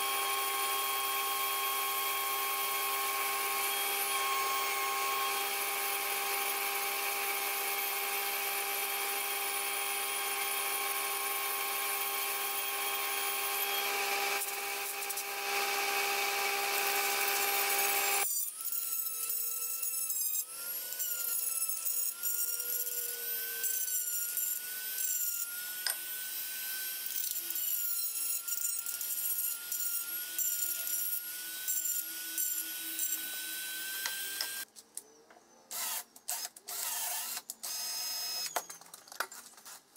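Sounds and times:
milling machine whine and cutting: 0:00.0 - 0:18.3
rotary tool whining: 0:00.0 - 0:34.7, 0:35.7 - 0:38.9.

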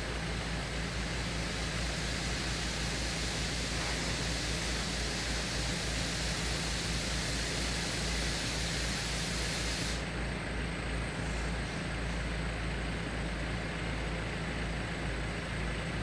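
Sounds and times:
diesel engine drone: 0:00.0 - 0:16.0
broad hiss: 0:01.0 - 0:10.1.

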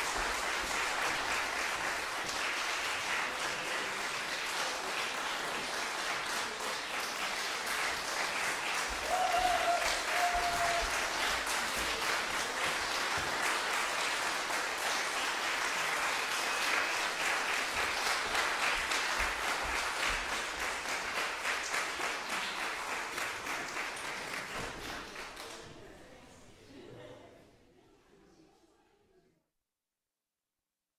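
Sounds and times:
audience applauding: 0:00.0 - 0:25.6
person cheering: 0:09.0 - 0:11.0.

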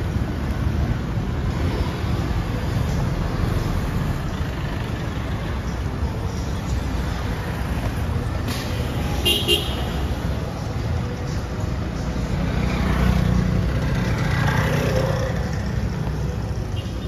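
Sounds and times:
road traffic: 0:00.0 - 0:17.0
vehicle horn tooting: 0:09.2 - 0:09.8.

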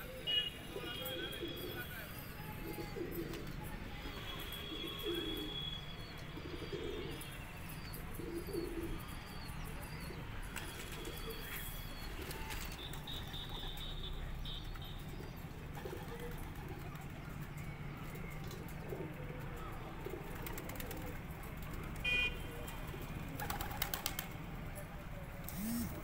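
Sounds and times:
pigeons cooing: 0:00.0 - 0:03.7, 0:04.6 - 0:07.3, 0:07.9 - 0:09.3, 0:15.0 - 0:17.4, 0:18.1 - 0:21.8.

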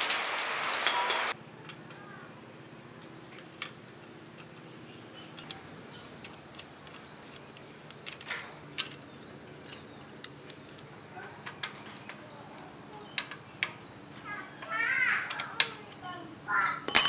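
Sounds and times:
small metallic clicks: 0:03.0 - 0:13.8.

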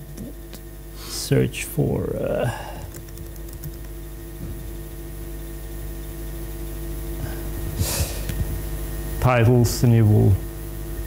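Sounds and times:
electrical hum: 0:00.0 - 0:11.0
laptop keyboard keystrokes: 0:02.9 - 0:04.0.

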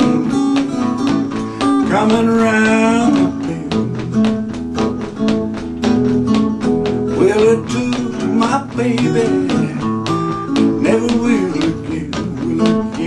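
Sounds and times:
acoustic guitar rhythm: 0:00.0 - 0:13.0.

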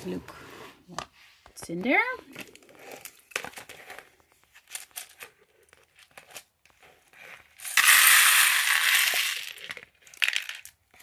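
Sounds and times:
plastic bricks clattering into tray: 0:07.6 - 0:11.0
plastic bricks clicking: 0:07.7 - 0:10.8.

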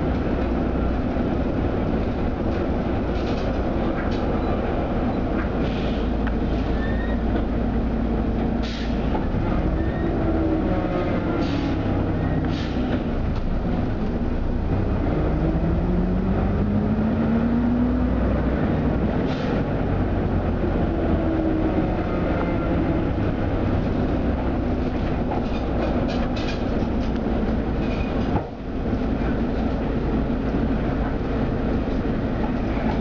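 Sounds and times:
bus engine drone: 0:00.0 - 0:33.0
road rumble: 0:00.0 - 0:33.0
bodywork rattles and clicks: 0:24.8 - 0:29.8.

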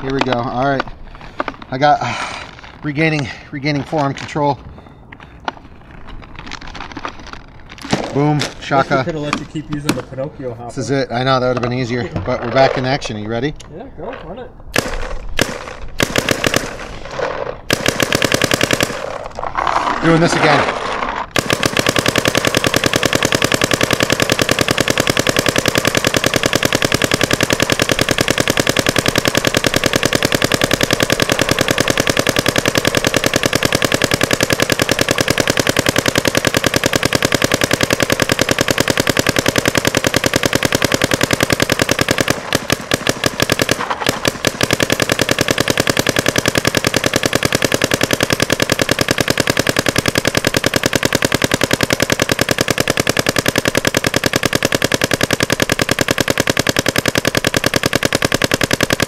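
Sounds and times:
paintball marker firing bursts: 0:14.7 - 0:59.0.

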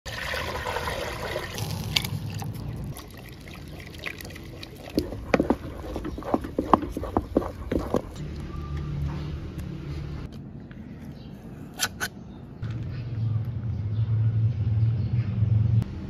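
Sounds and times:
water pouring into metal pot: 0:00.1 - 0:06.0
stick knocking against pot: 0:04.9 - 0:08.2.

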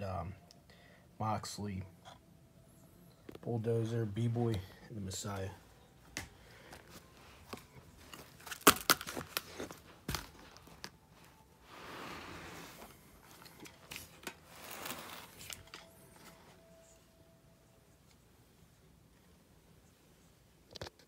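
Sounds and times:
soft rustling: 0:09.1 - 0:17.2.

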